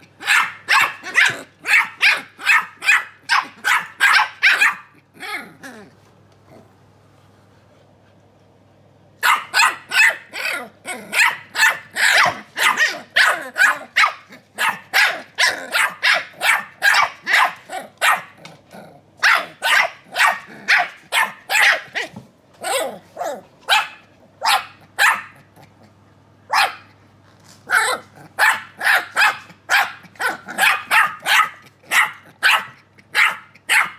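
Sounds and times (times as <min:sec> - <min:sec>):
puppies yapping: 0:09.2 - 0:18.2.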